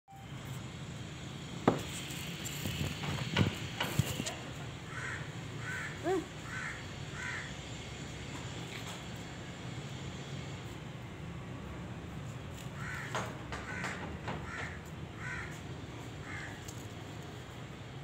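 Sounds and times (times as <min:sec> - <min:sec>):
crow cawing: 0:04.9 - 0:07.6, 0:12.8 - 0:15.6, 0:16.2 - 0:16.8
sharp knocks: 0:13.0 - 0:14.9.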